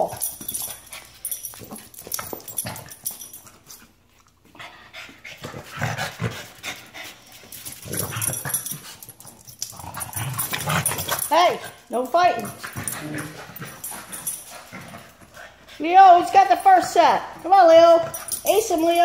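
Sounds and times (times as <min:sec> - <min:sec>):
dogs panting: 0:00.0 - 0:19.0
dogs growling: 0:04.5 - 0:15.7.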